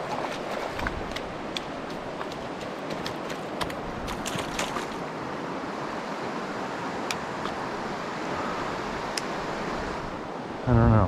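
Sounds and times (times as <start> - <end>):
shallow river rushing over cobbles: 0.0 - 10.7.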